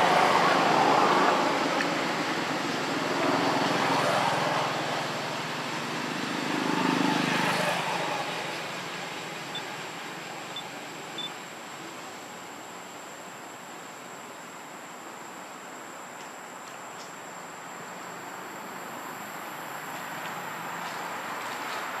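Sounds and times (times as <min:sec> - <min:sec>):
road traffic passing: 0:00.0 - 0:12.2, 0:17.3 - 0:22.0.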